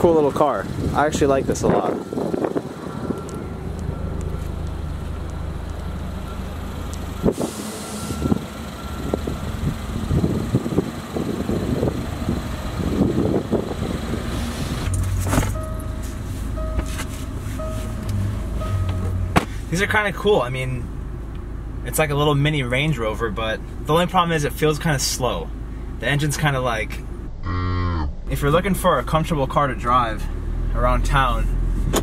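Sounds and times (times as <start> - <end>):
car engine idling: 0.0 - 27.3
sharp clunk: 14.9 - 15.8, 18.8 - 19.6.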